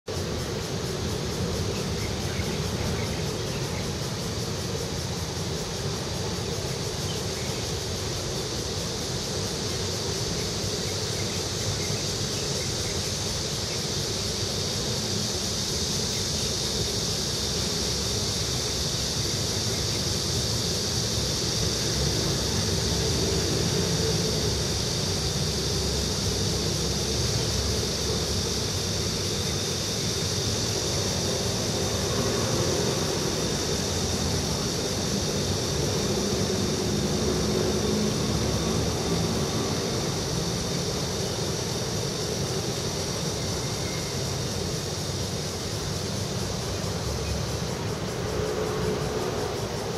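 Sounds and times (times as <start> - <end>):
traffic rumble: 15.2 - 49.9.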